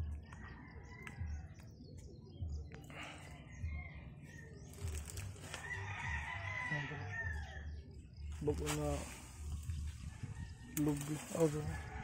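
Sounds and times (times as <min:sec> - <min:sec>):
small birds chirping: 0:00.0 - 0:12.0
hands digging in grass and soil: 0:04.6 - 0:05.8, 0:08.3 - 0:12.0.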